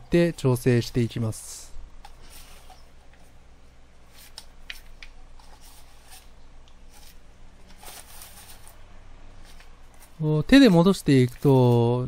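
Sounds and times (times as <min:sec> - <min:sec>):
hands rustling soil on newspaper: 0:05.4 - 0:08.8, 0:09.4 - 0:12.0.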